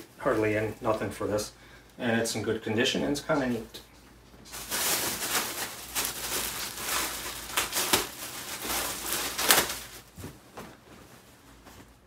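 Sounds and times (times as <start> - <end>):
plastic bag rustling and crinkling: 4.4 - 12.0.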